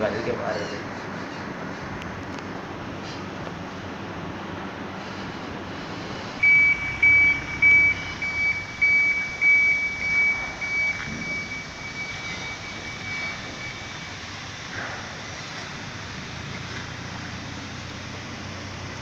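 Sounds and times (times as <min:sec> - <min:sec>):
outdoor background noise: 0:00.0 - 0:19.0
high-pitched electronic beeping: 0:06.4 - 0:14.2.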